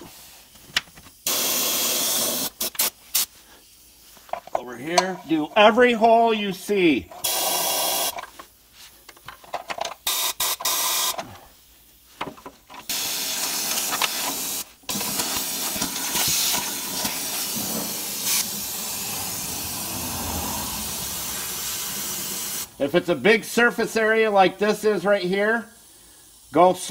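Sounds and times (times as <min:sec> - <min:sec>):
spray gun hissing: 0:01.2 - 0:04.1, 0:07.2 - 0:08.2, 0:10.1 - 0:11.2, 0:12.9 - 0:23.0.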